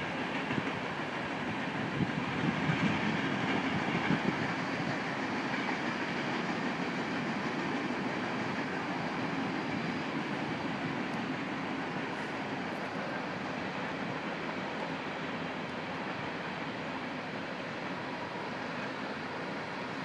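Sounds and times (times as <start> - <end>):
wheels clicking on rails: 0.0 - 13.8
freight train wheels on track: 0.0 - 20.0.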